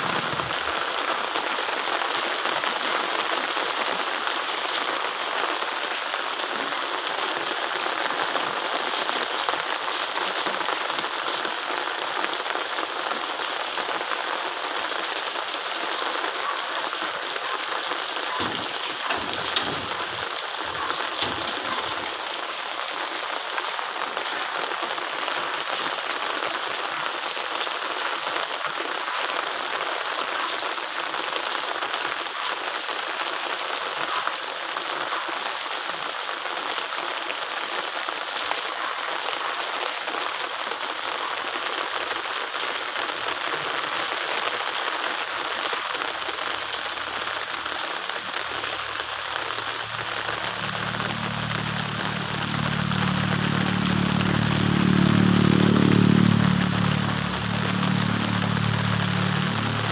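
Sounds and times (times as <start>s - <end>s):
steady rain: 0.0s - 59.9s
low bumps: 18.3s - 22.4s, 49.1s - 59.9s.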